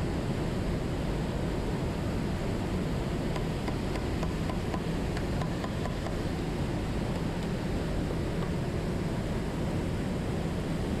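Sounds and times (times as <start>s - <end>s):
rushing background noise: 0.0s - 11.0s.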